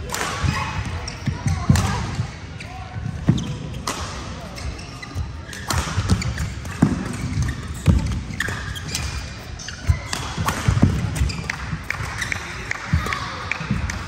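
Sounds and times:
racket hitting shuttlecock: 3.2s - 4.5s, 5.5s - 9.2s, 9.8s - 14.0s.

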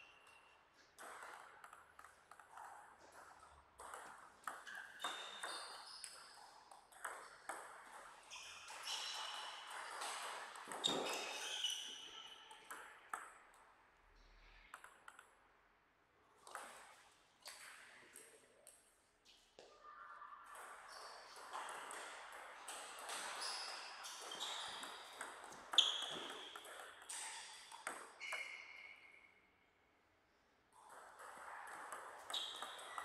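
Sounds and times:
shoes squeaking on floor: 4.6s - 6.4s, 8.2s - 12.7s, 23.1s - 27.6s, 28.2s - 29.0s, 32.3s - 33.0s.

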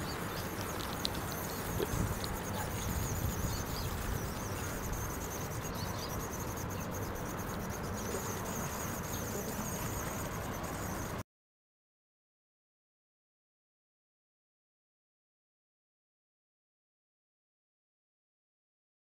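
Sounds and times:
wind rumble on microphone: 0.0s - 6.7s
high-pitched insect chorus: 0.0s - 11.2s.

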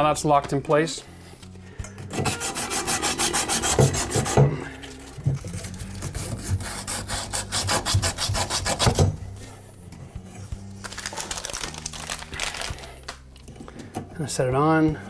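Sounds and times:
sand cloth scrubbing copper pipe: 2.2s - 4.7s.

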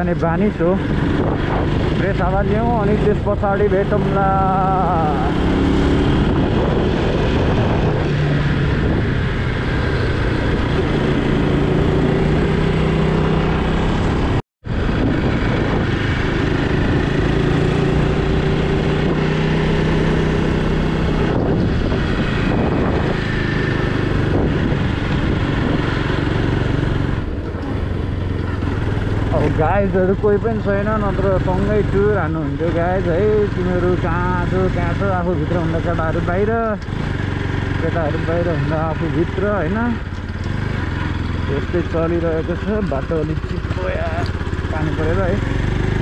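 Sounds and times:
wind noise on microphone: 0.0s - 30.2s
motorcycle engine running: 0.0s - 46.0s.

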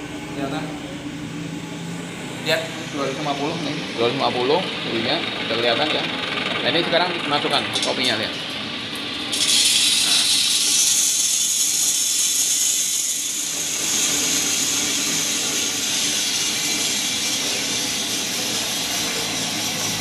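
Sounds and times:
roaster burner hiss: 0.0s - 20.0s
coffee beans pouring: 9.3s - 18.8s.

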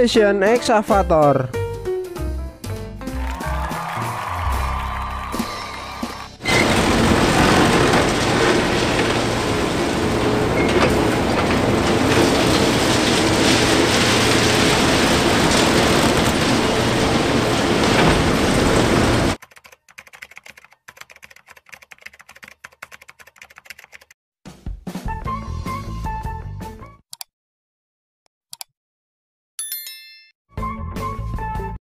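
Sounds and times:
machine engine hum: 6.4s - 19.4s
concrete crunching and cracking: 6.5s - 18.7s.

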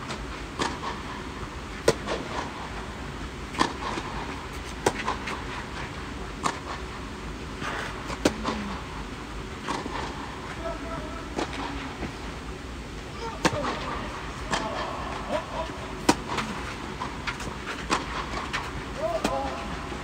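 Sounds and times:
tennis racket hitting ball: 13.4s - 19.6s.

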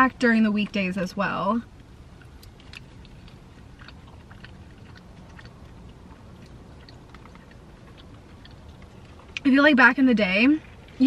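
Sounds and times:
low steady hum: 0.0s - 11.0s
wet chewing mouth clicks: 1.8s - 9.5s.

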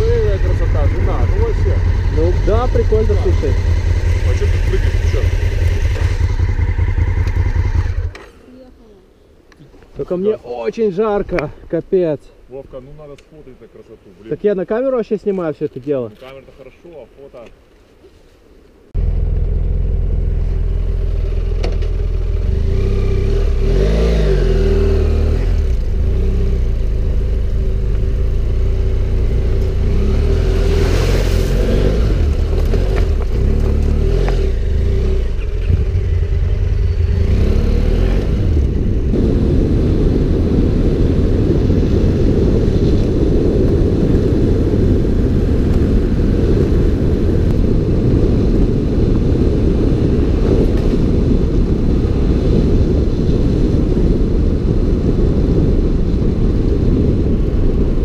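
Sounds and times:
motorcycle engine running: 0.0s - 8.2s, 19.0s - 30.6s, 31.8s - 41.5s
wind rumble on microphone: 0.0s - 8.2s, 18.9s - 58.0s.

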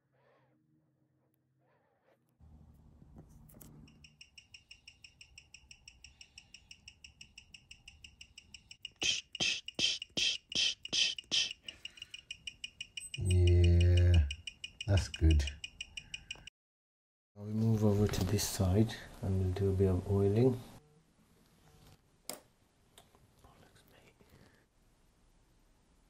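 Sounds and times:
watch ticking through speaker: 3.8s - 16.5s.

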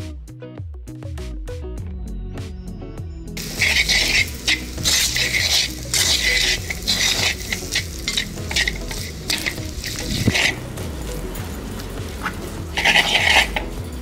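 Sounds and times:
wooden spoon scraping a pot: 3.4s - 10.8s, 11.8s - 14.0s
meat sizzling in a pot: 3.4s - 14.0s.

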